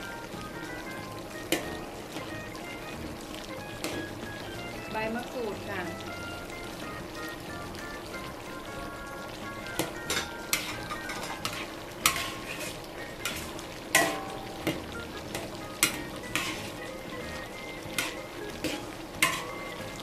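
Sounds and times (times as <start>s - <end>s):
curry sizzling: 0.0s - 20.0s
ladle clanking against pan: 9.8s - 16.8s, 17.9s - 20.0s
ladle scraping a wok: 10.0s - 14.3s, 15.3s - 17.0s, 17.9s - 20.0s.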